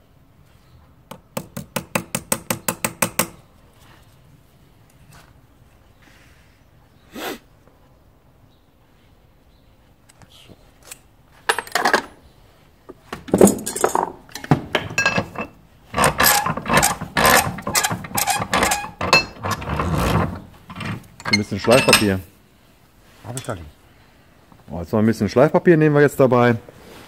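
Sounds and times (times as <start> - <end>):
hammer tapping on metal strip: 1.1 - 3.4.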